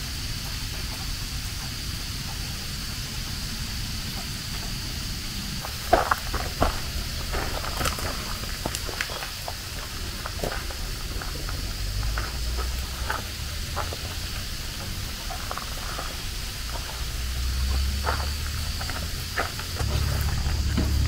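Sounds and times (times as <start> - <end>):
high-pitched insect drone: 0.0 - 21.0
low rumble: 1.0 - 21.0
light ticks and crunches: 5.6 - 20.7.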